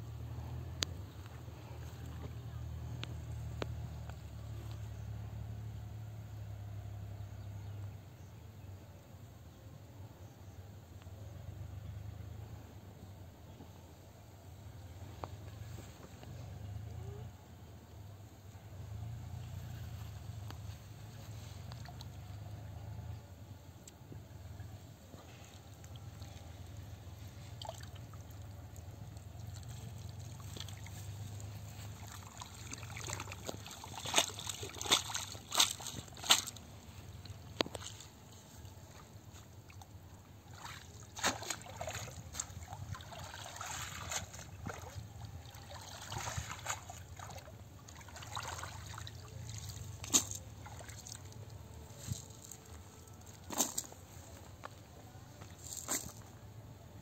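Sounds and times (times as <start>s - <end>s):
water sloshing and trickling: 18.0s - 56.4s
net dripping: 27.4s - 38.0s, 40.5s - 53.9s.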